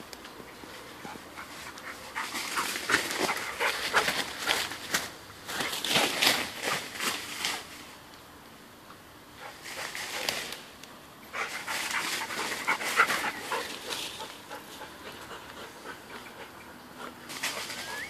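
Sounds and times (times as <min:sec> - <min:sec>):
rustling of leafy undergrowth: 0:00.0 - 0:18.0
dog panting: 0:11.4 - 0:17.7.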